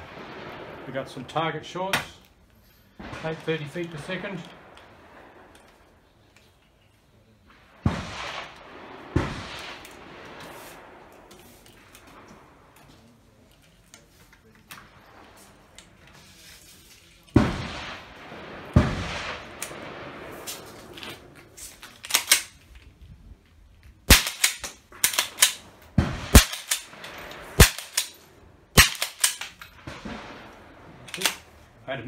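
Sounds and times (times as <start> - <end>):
rifle shots: 3.0 - 6.0, 7.5 - 13.2, 17.3 - 22.6, 24.1 - 31.6.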